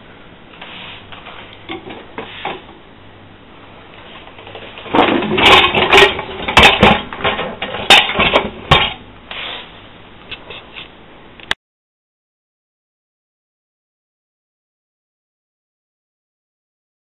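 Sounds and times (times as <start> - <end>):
dishwasher rack rattling: 4.8 - 9.0.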